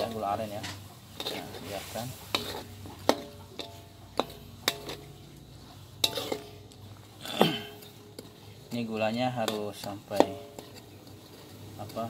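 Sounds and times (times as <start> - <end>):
spatula stirring liquid in wok: 0.0 - 12.0
spatula knocking ringing wok: 2.2 - 6.8, 7.7 - 12.0.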